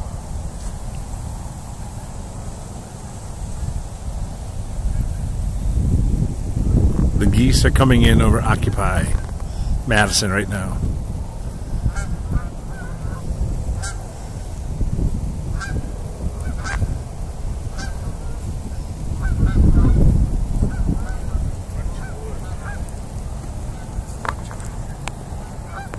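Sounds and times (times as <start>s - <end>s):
low rumbling noise: 0.0s - 25.9s
geese honking: 11.4s - 14.6s, 15.5s - 17.0s, 17.6s - 25.9s.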